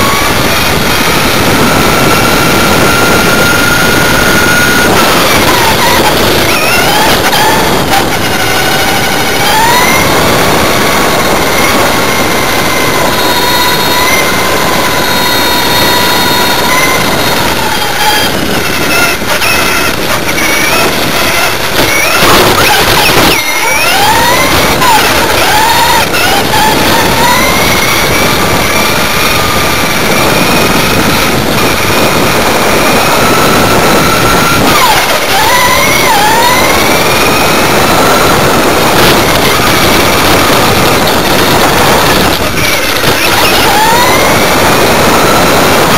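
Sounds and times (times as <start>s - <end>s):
engine whine: 0.0s - 45.9s
loud rushing noise: 0.0s - 45.9s
road and wind noise: 0.0s - 45.9s.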